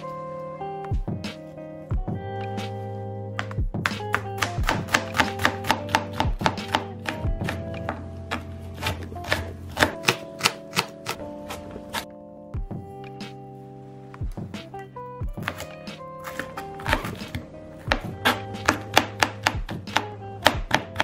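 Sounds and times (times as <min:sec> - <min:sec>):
background music: 0:00.0 - 0:21.0
knife chopping on cutting board: 0:03.4 - 0:12.0, 0:15.4 - 0:21.0.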